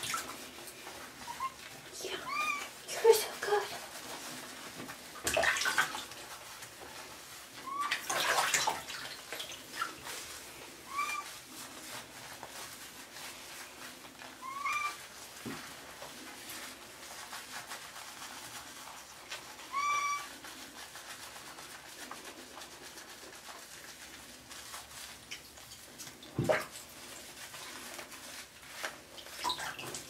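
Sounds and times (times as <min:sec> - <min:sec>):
cat meowing: 0:02.2 - 0:02.7, 0:10.9 - 0:11.3, 0:14.4 - 0:15.0, 0:19.7 - 0:20.3.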